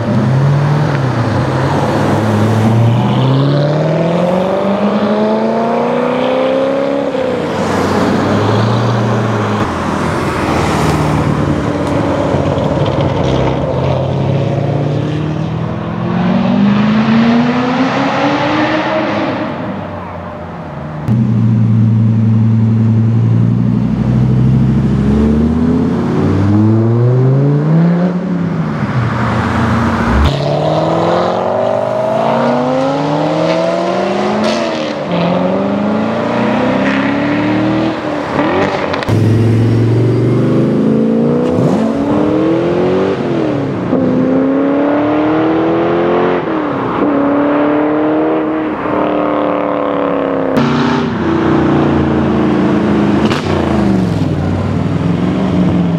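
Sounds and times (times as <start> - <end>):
car engines accelerating past: 24.5 - 55.9
deep engine rumble: 29.7 - 30.8.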